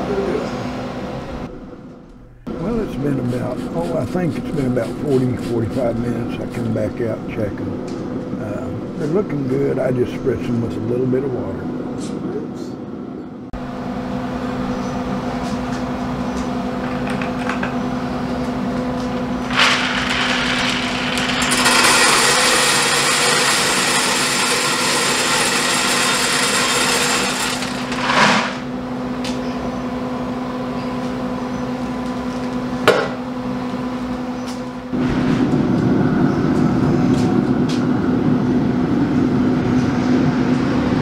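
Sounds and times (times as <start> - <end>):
steady hum: 0.0 - 41.0
wood pellets pouring into hopper: 19.5 - 28.7.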